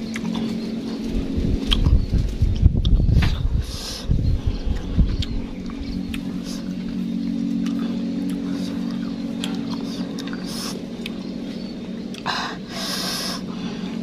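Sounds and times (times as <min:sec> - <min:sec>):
low motor hum: 0:00.0 - 0:14.0.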